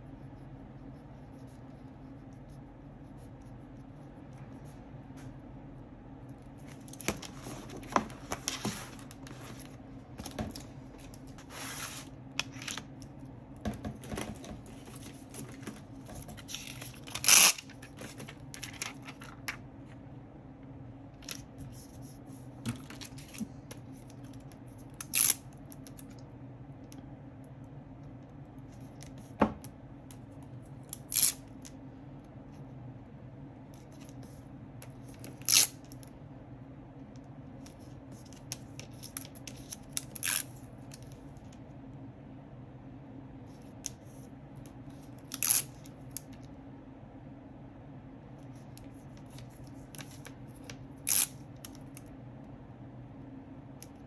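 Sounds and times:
pen scratching and paper rustling: 0:00.0 - 0:04.8, 0:21.3 - 0:26.0
low steady hum: 0:00.0 - 0:54.0.

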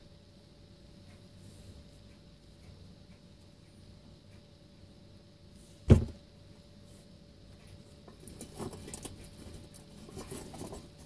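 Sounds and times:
sharp thump: 0:05.9 - 0:06.2.

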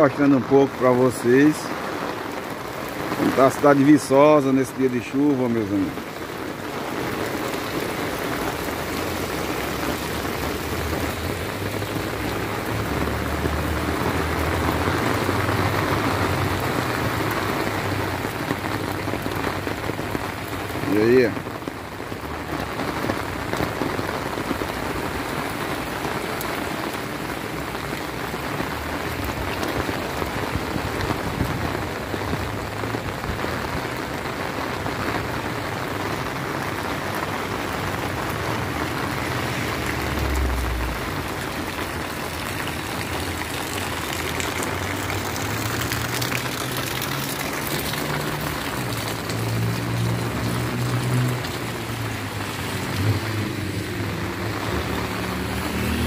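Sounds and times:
rain on pavement: 0:00.0 - 0:56.0
vehicle engine hum: 0:37.6 - 0:56.0.

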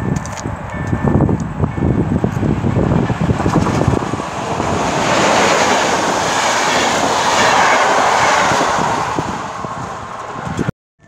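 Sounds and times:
train passing at speed: 0:00.5 - 0:10.7
clattering train wheels: 0:02.1 - 0:10.6.

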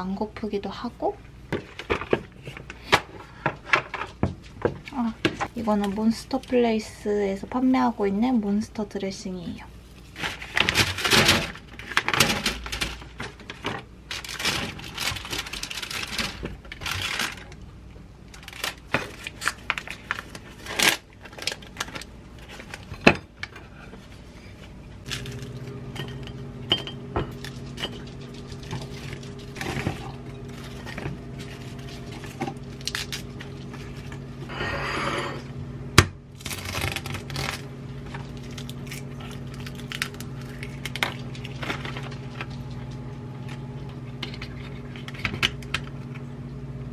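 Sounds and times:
low appliance hum: 0:00.0 - 0:46.9
parchment paper rustling: 0:09.8 - 0:17.6, 0:27.4 - 0:34.4.

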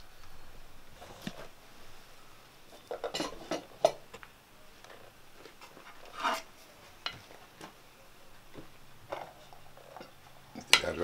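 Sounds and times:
metal utensils clinking on pot: 0:02.7 - 0:04.1, 0:09.1 - 0:11.0
utensil scraping: 0:04.9 - 0:07.4.

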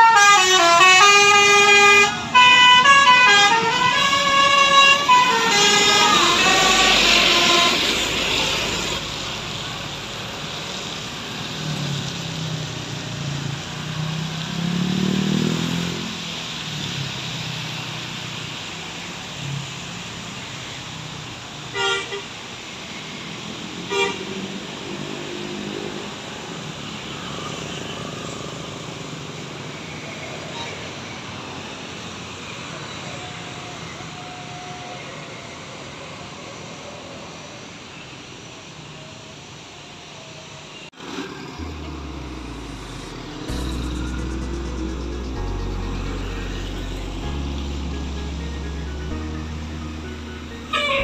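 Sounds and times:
horn tune: 0:00.0 - 0:09.1, 0:41.4 - 0:51.0
passing motorcycles road noise: 0:00.0 - 0:21.6, 0:23.0 - 0:32.8
heavy bus engine climbing: 0:41.0 - 0:51.0
short horn toots: 0:41.6 - 0:51.0.

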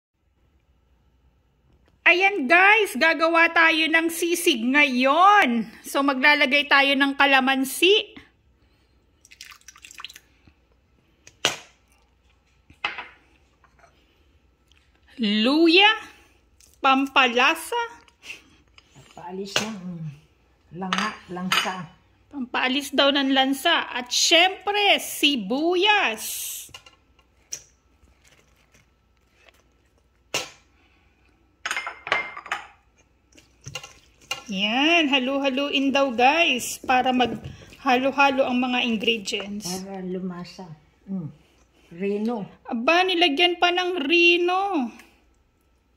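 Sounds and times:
juice pouring into steel bowl: 0:09.2 - 0:10.4.

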